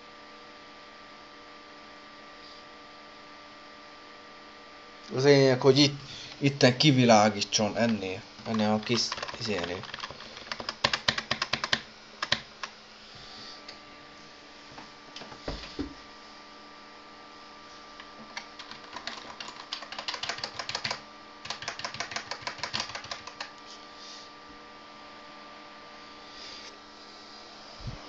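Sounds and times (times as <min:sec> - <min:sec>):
computer hum: 0:02.9 - 0:28.0
keyboard keys clicking: 0:07.8 - 0:12.7, 0:18.3 - 0:23.5.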